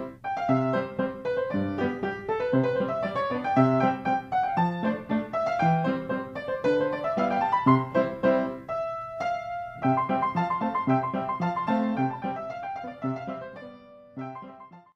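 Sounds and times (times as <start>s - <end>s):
silent film style piano: 0.0s - 14.9s.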